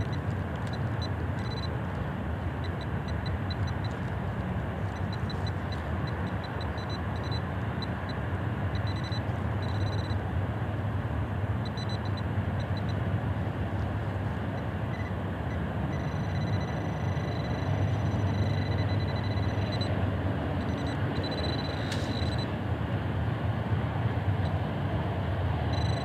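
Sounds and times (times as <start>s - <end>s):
metal detector beeping: 0.0s - 1.8s, 2.6s - 4.2s, 4.8s - 8.1s, 8.7s - 10.2s, 11.6s - 13.0s, 14.6s - 20.0s, 20.6s - 22.5s, 25.7s - 26.0s.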